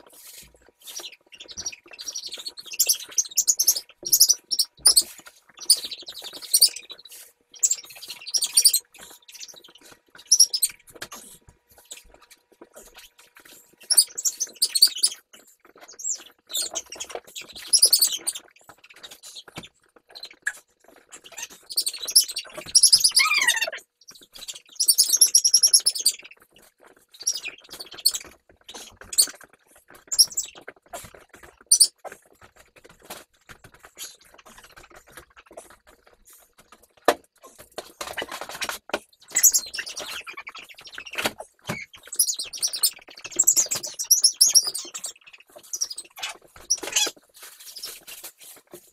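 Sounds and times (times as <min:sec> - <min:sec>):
puppies whining and squealing: 0:20.3 - 0:23.9, 0:45.5 - 0:47.2.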